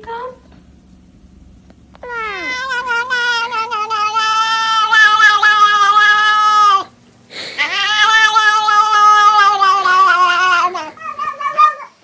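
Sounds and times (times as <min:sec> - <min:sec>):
cat meowing: 0:02.0 - 0:06.9, 0:07.6 - 0:12.0.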